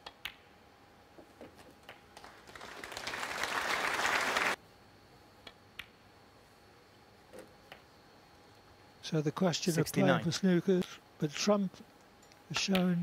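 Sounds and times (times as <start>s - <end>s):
audience applause: 2.2s - 4.6s.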